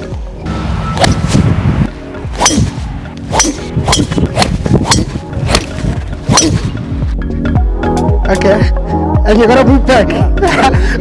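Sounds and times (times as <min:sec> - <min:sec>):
steady low bass: 0:00.0 - 0:11.0
sharp percussive hits: 0:02.3 - 0:06.7.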